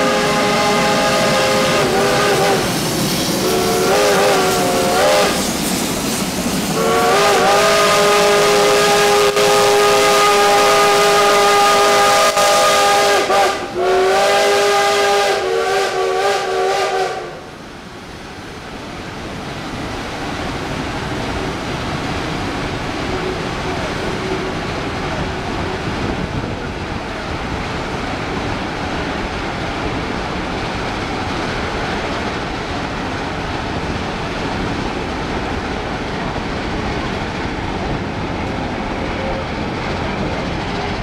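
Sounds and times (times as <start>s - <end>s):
steam locomotive whistle: 0.0s - 5.8s, 6.6s - 17.5s
train hiss and exhaust: 0.0s - 41.0s.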